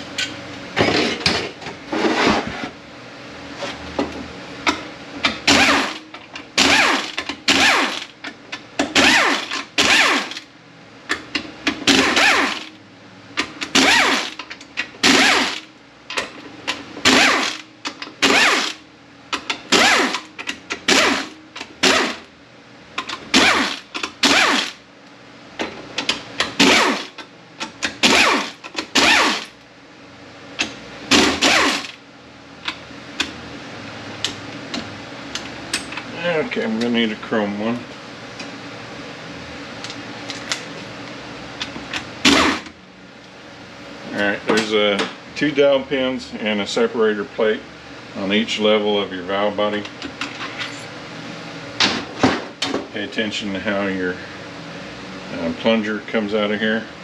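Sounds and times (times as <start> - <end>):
power driver motor bursts: 5.5 - 6.0, 6.6 - 8.1, 9.0 - 10.4, 11.9 - 12.7, 13.7 - 14.4, 15.0 - 15.6, 17.0 - 18.8, 19.7 - 20.3, 20.9 - 22.2, 23.3 - 24.8, 26.6 - 27.1, 28.0 - 29.6, 31.1 - 32.0, 42.2 - 42.7.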